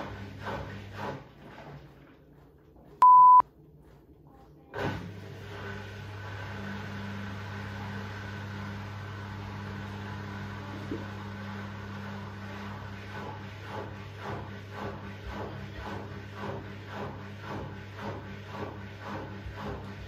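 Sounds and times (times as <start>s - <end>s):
washing machine motor humming: 0.0s - 20.0s
washing machine beep: 3.0s - 3.4s.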